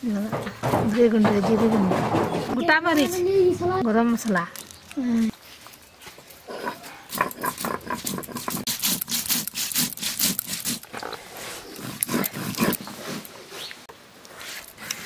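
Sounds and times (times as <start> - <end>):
stone roller grinding spices: 7.2 - 13.3.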